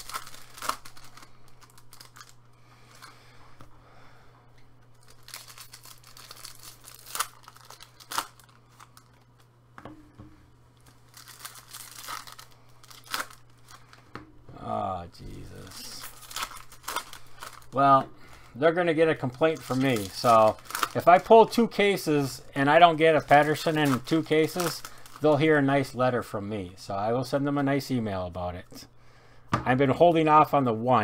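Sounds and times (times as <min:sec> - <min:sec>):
sharp foil rips: 0:00.0 - 0:02.4, 0:05.0 - 0:09.2, 0:10.9 - 0:14.0, 0:15.4 - 0:17.8, 0:19.4 - 0:21.2, 0:23.1 - 0:25.3
foil wrappers crinkling: 0:00.0 - 0:03.1, 0:04.9 - 0:09.5, 0:10.8 - 0:14.1, 0:15.2 - 0:25.9
faint low hum: 0:00.0 - 0:31.0.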